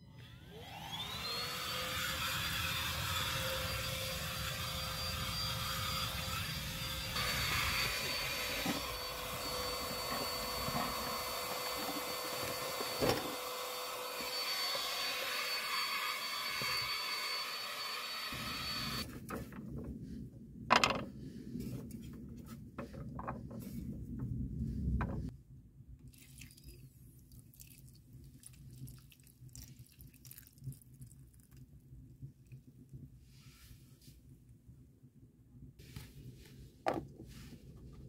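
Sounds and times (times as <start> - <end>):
handheld vacuum cleaner whining: 0.0 - 19.1.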